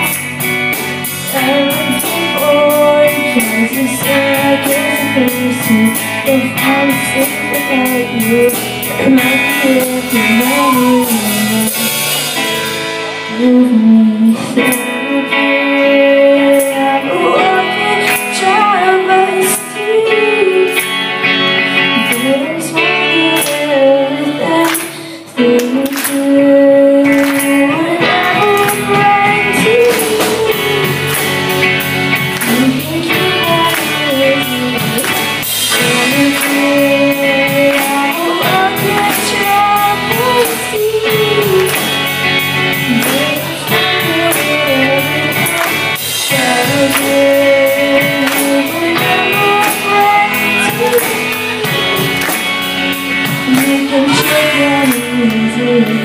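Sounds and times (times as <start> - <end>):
rock band playing: 0.0 - 56.0
woman singing: 1.0 - 56.0.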